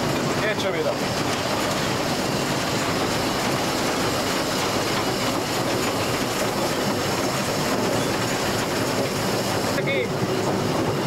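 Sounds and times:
steam locomotive machinery working: 0.0 - 11.0
wheels on rail: 0.0 - 11.0.

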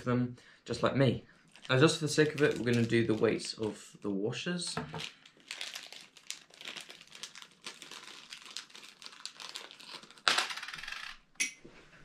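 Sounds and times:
plastic bag crinkling: 1.5 - 4.0, 4.8 - 11.0.

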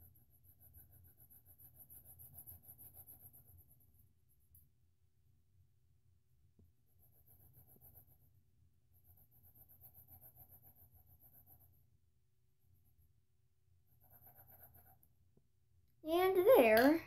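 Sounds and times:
colored pencil scratching on paper: 0.0 - 4.6, 6.8 - 12.0, 13.8 - 15.2.

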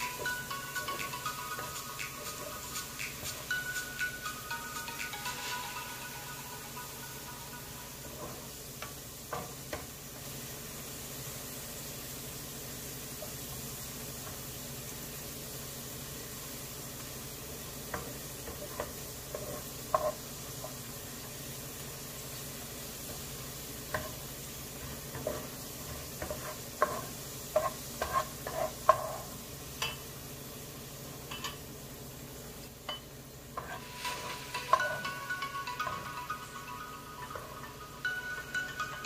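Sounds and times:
food sizzling in a pot: 0.0 - 39.0
utensil scraping a pot: 26.2 - 29.3.

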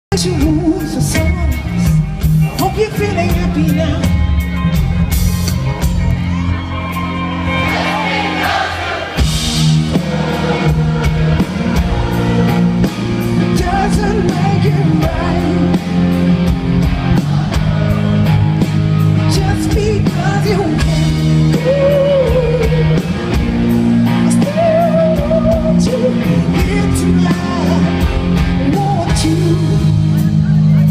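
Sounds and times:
live rock band playing: 0.1 - 30.9
audience singing along: 7.3 - 26.6.

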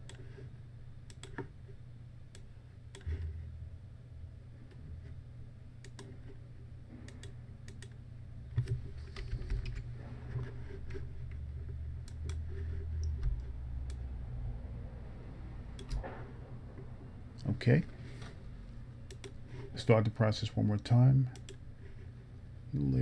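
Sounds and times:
steady low hum: 0.0 - 23.0
mouse and keyboard clicks: 15.8 - 16.0.

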